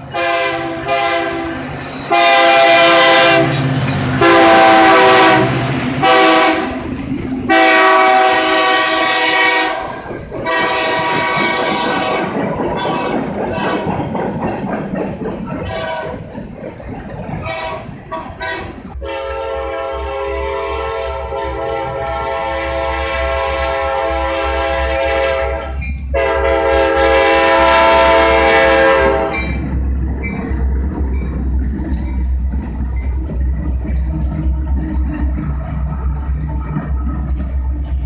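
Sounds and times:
freight cars rolling: 0:00.0 - 0:38.0
locomotive engines rumbling: 0:00.0 - 0:38.0
locomotive air horn blasts: 0:00.1 - 0:03.6, 0:04.2 - 0:06.8, 0:07.5 - 0:13.9, 0:17.4 - 0:29.6.

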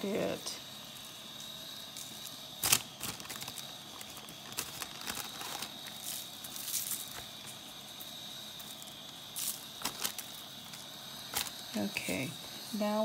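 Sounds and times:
seasoning shaker shaking: 0:01.9 - 0:11.7.

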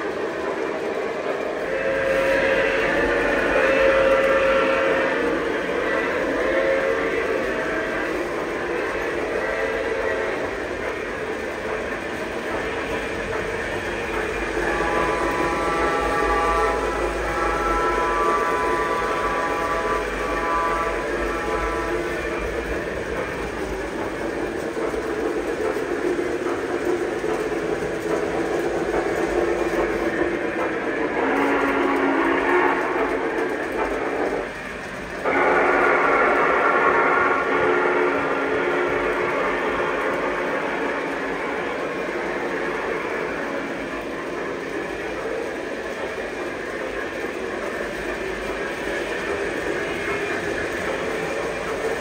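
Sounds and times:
locomotive hum: 0:00.0 - 0:52.0
model train rolling rumble: 0:00.0 - 0:52.0.

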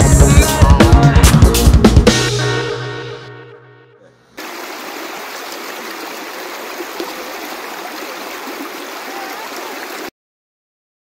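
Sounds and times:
creek rippling over rocks: 0:04.4 - 0:10.1.

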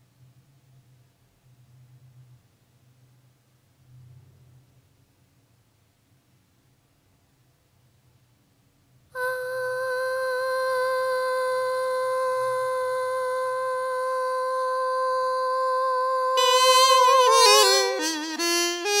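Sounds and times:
small wind instrument bending notes: 0:09.2 - 0:19.0.

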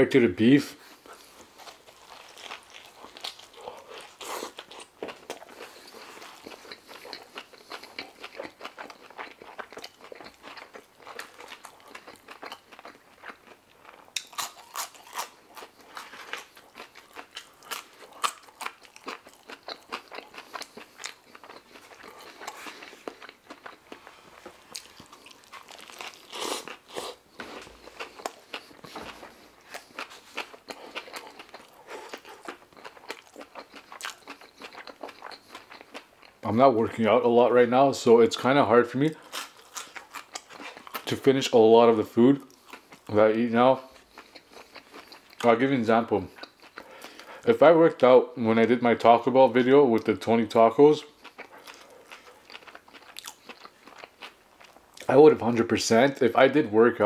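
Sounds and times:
chewing and lip smacking: 0:00.9 - 0:36.4, 0:39.1 - 0:41.1, 0:43.8 - 0:45.7, 0:46.3 - 0:47.5, 0:51.0 - 0:55.1.

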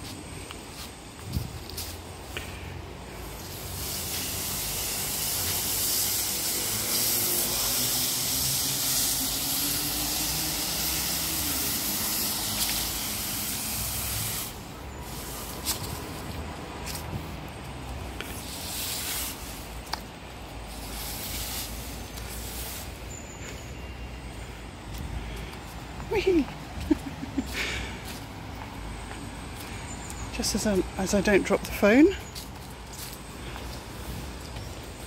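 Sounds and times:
push broom sweeping leaves on stone: 0:00.0 - 0:28.5, 0:29.2 - 0:35.0
broom scrapes: 0:03.1 - 0:17.4, 0:18.1 - 0:24.0.

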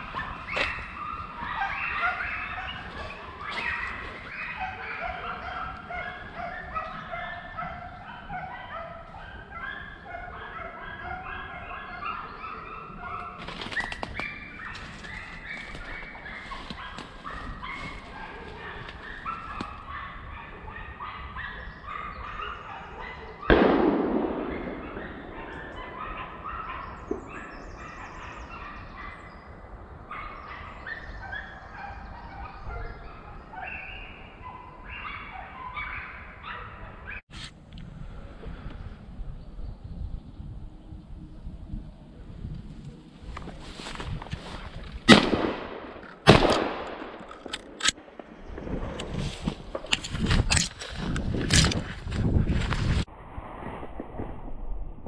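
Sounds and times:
hounds baying and yelping: 0:00.0 - 0:23.6, 0:24.4 - 0:37.3
gunshot echoing: 0:23.5 - 0:26.4, 0:45.1 - 0:48.9.

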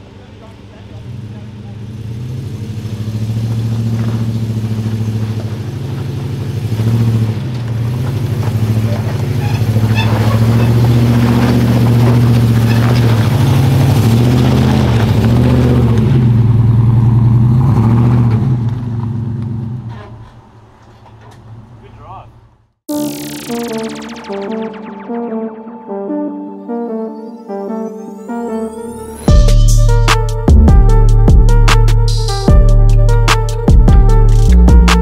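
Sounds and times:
off-road engine at low revs: 0:00.0 - 0:22.8, 0:29.3 - 0:35.0.

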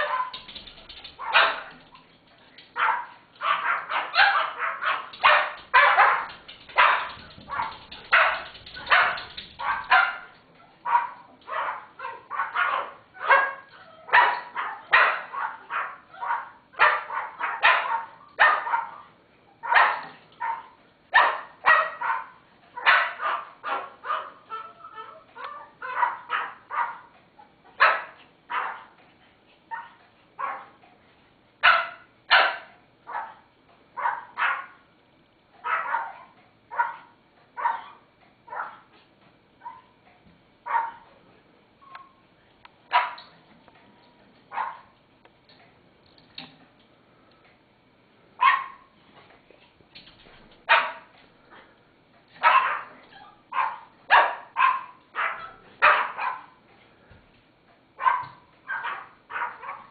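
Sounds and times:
small dogs barking: 0:00.0 - 0:27.1, 0:27.7 - 0:29.0, 0:29.7 - 0:30.8, 0:31.6 - 0:34.9, 0:35.6 - 0:38.9, 0:39.6 - 0:40.0, 0:40.6 - 0:41.1, 0:42.9 - 0:43.4, 0:44.5 - 0:45.0, 0:48.4 - 0:49.0, 0:50.6 - 0:51.8, 0:52.4 - 0:56.6, 0:58.0 - 0:59.9.

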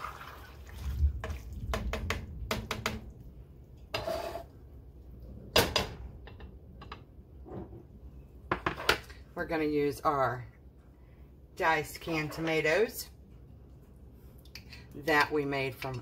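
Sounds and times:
spoon scraping metal pot: 0:03.9 - 0:04.5.

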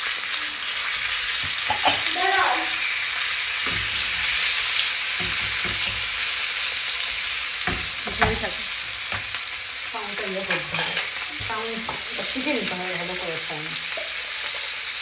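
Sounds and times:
food sizzling in hot oil: 0:00.0 - 0:15.0
spatula scraping a pan: 0:01.0 - 0:09.4, 0:10.4 - 0:12.8.

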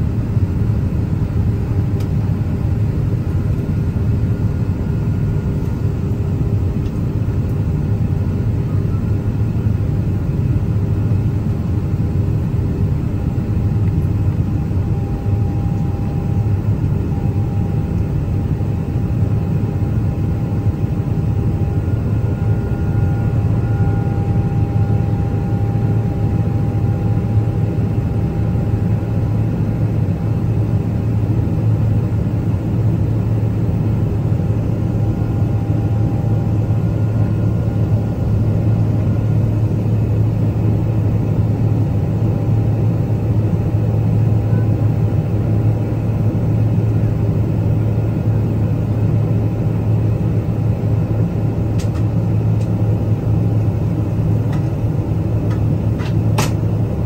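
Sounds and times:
airplane cabin engine roar: 0:00.0 - 0:57.0
faint even whine: 0:12.1 - 0:31.2, 0:32.0 - 0:57.0.

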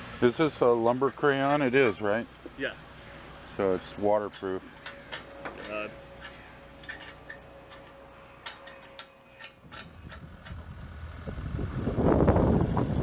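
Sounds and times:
rushing machine and wind noise: 0:02.9 - 0:13.0.

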